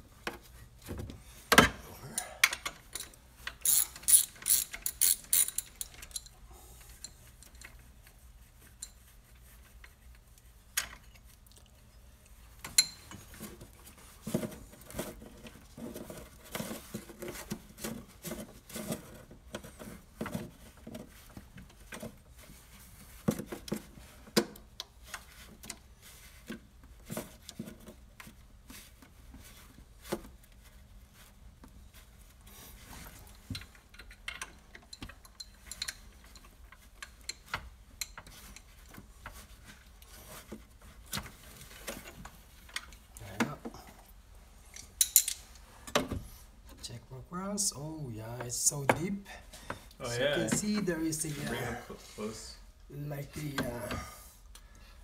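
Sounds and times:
socket ratchet wrench clicking: 3.6s - 6.2s.

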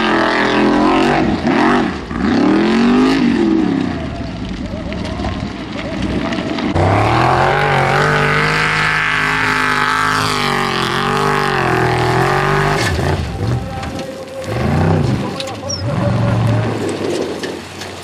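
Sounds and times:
buggy engine at high revs: 0.0s - 4.4s, 6.6s - 18.0s.

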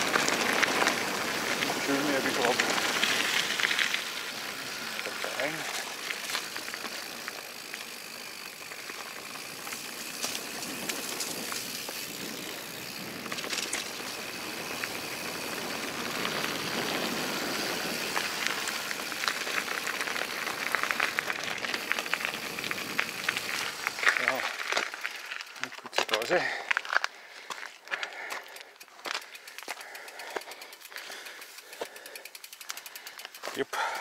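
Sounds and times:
bike rattles and clicks: 0.0s - 34.0s
bike tyre noise on trail: 0.0s - 34.0s.

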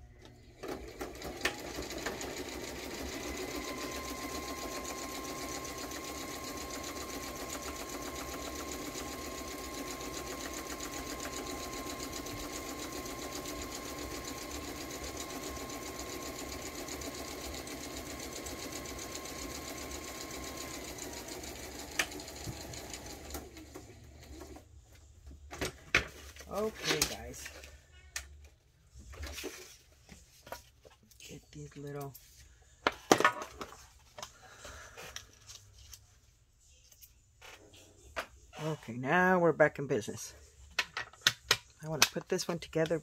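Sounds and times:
sewing machine motor whine: 0.6s - 24.6s
sewing machine stitching: 0.6s - 24.6s.

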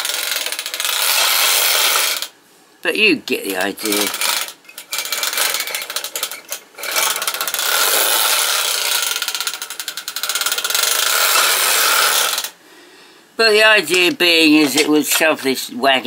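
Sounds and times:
clockwork toy train whirring: 0.0s - 2.3s, 3.8s - 12.5s.

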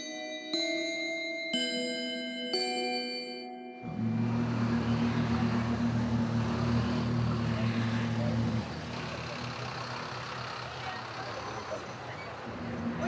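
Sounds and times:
city traffic noise: 3.8s - 13.0s
heavy vehicle engine rumble: 3.9s - 13.0s.

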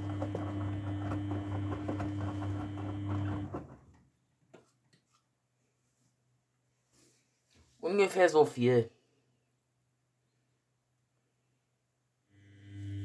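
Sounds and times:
washing machine motor humming: 0.0s - 4.0s, 12.4s - 13.0s
water sloshing and knocks: 0.0s - 4.0s.

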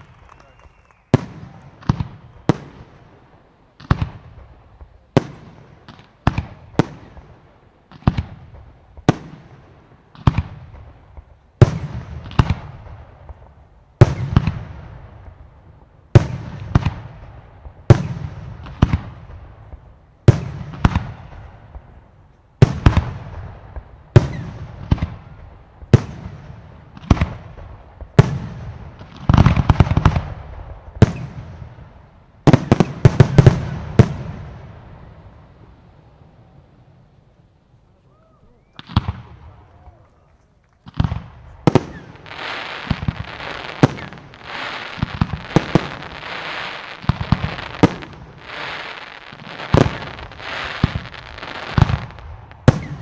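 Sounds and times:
crackling firework pops: 0.0s - 3.0s, 3.8s - 7.3s, 7.9s - 9.5s, 16.2s - 31.6s, 38.6s - 53.0s.

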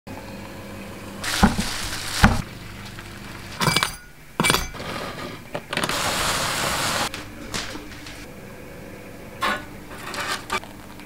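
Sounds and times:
glass clinks: 3.6s - 4.8s.

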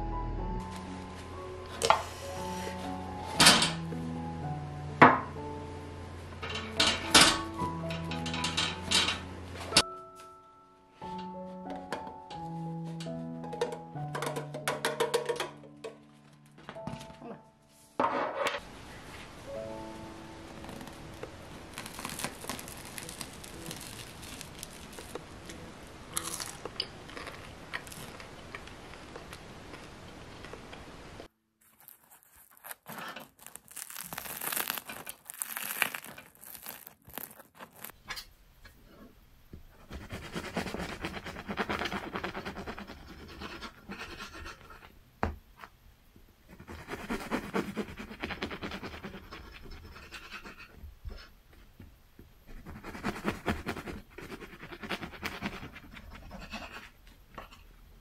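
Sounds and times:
bread crust crackling: 20.5s - 30.0s, 31.6s - 38.0s
knife sawing through bread: 39.8s - 44.7s, 46.5s - 50.7s, 52.6s - 56.9s.

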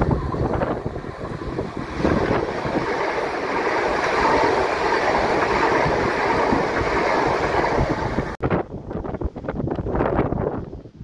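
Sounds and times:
train rushing past: 0.0s - 8.4s
wind buffeting microphone: 0.0s - 11.0s.

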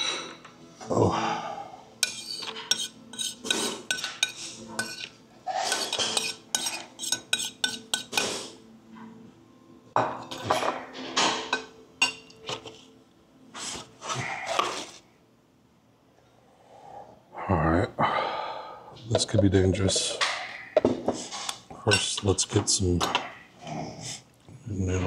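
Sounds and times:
plate and utensils clattering: 2.0s - 8.3s, 10.0s - 12.9s, 19.1s - 23.4s.

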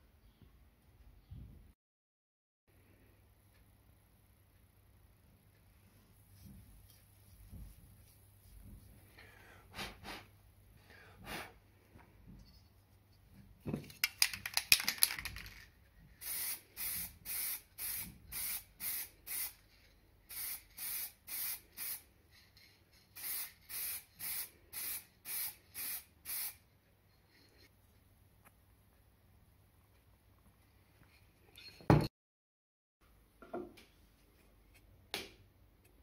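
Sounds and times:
aerosol spray can hissing: 16.2s - 19.6s, 20.3s - 22.0s, 23.2s - 26.6s.

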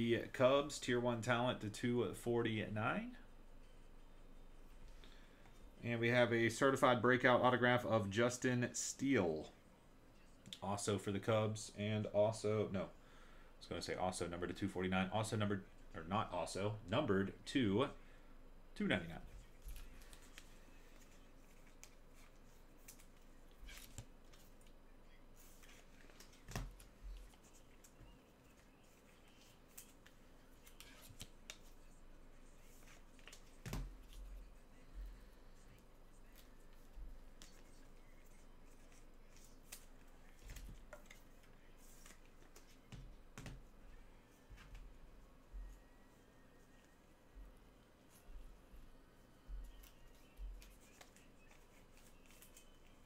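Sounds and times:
cards and cardboard clicks and thumps: 33.2s - 34.2s, 41.9s - 43.7s.

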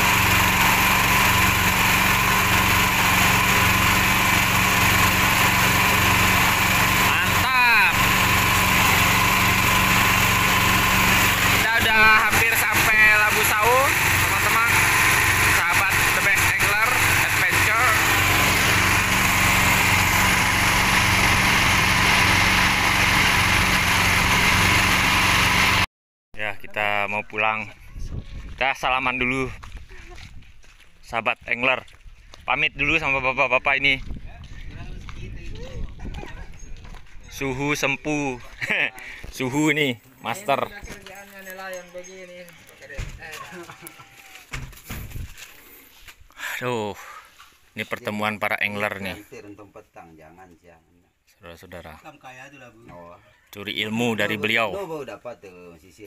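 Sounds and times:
boat engine running: 0.0s - 25.9s.

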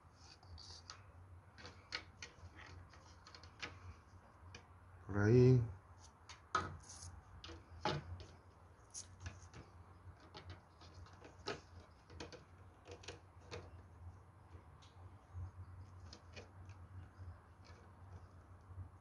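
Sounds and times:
plastic panels clicking and tapping: 7.4s - 8.4s, 9.2s - 13.8s.

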